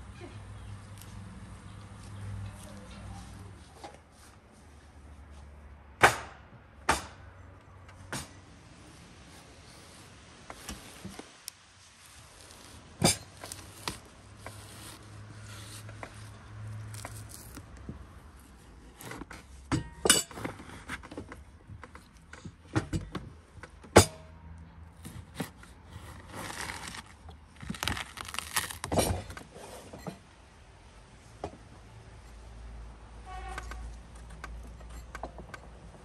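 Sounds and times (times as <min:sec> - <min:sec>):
knife cutting watermelon rind: 0:12.0 - 0:19.6, 0:25.0 - 0:29.5.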